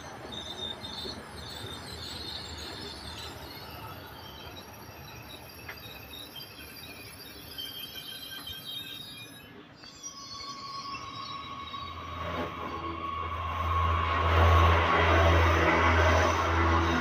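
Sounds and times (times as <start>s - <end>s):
high-pitched wheel squeal: 0.0s - 17.0s
train rolling rumble: 0.0s - 17.0s.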